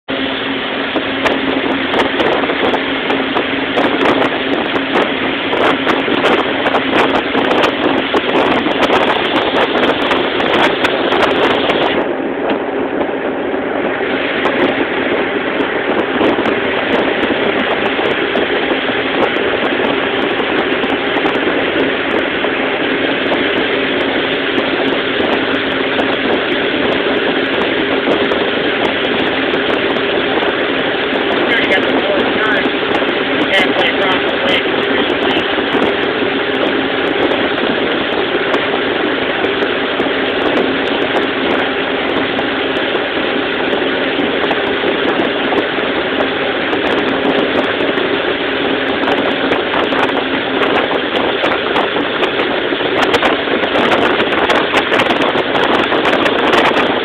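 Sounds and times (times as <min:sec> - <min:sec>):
churning water: 0:00.0 - 0:57.0
motorboat engine running: 0:00.0 - 0:57.0
wind crackling on microphone: 0:00.0 - 0:57.0
wind rushing: 0:00.1 - 0:57.0.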